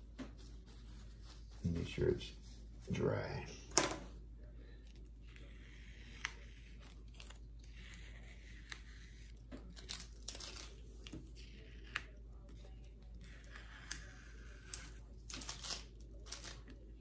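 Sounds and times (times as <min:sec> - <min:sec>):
masking tape peeling off paper: 0:11.4 - 0:16.8.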